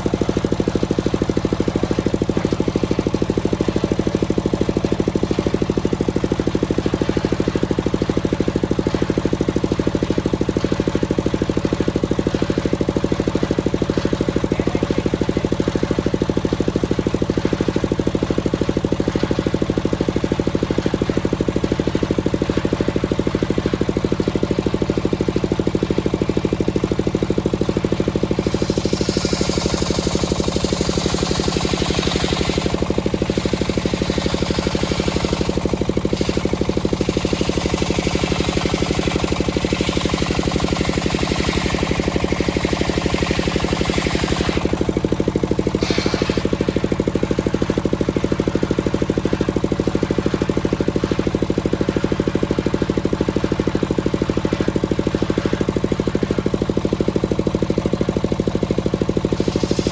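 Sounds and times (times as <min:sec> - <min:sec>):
engine running: 0:00.0 - 0:59.9
circular saw blade ripping wood: 0:45.8 - 0:46.6.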